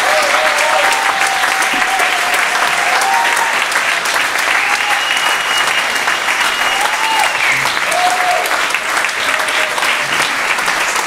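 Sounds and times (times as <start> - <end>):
people whooping: 0.0 - 10.3
audience applauding: 0.0 - 11.0
long high whistle: 4.6 - 7.6.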